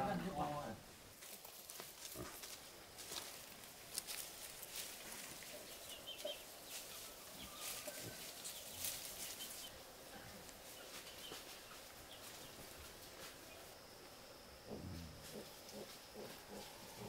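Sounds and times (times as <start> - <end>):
crackling and rustling in dry leaves: 1.1 - 13.8, 15.0 - 17.0
chickens clucking quietly: 3.2 - 13.8, 14.6 - 17.0.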